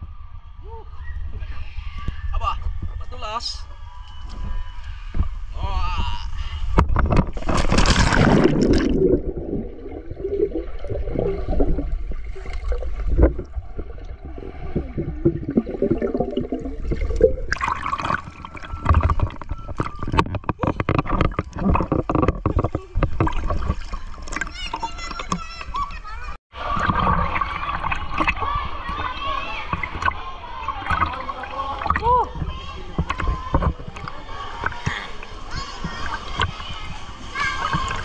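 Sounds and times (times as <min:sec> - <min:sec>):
water splashing and sloshing: 0:06.4 - 0:38.0
knocks and clicks: 0:18.8 - 0:24.5.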